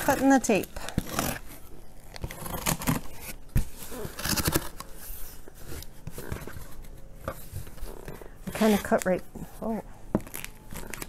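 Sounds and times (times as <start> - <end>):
box cutter slicing packing tape: 0.0 - 1.6, 2.2 - 4.9.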